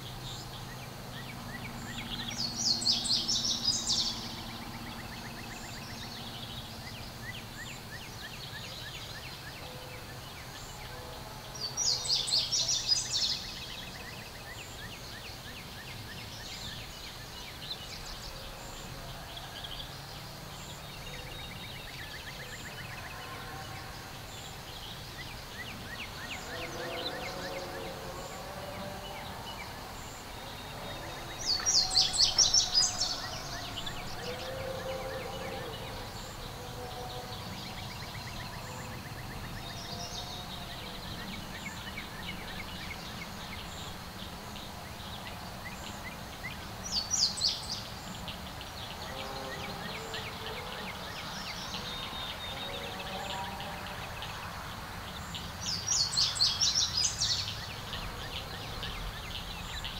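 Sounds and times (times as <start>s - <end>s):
outdoor background noise: 0.0s - 59.9s
songbird singing: 0.0s - 59.9s.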